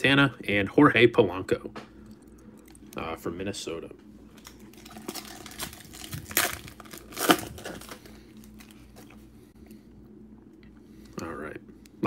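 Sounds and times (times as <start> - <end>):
foil wrapper tearing and crinkling: 4.4 - 8.8.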